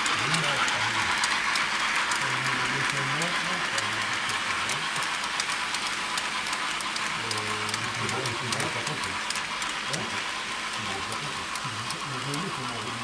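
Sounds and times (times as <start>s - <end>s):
faint voices: 0.0s - 1.3s, 2.2s - 5.2s, 7.1s - 9.2s, 10.8s - 13.0s
model train rolling rush: 0.0s - 13.0s
model train wheels clicking over rail joints: 0.0s - 13.0s.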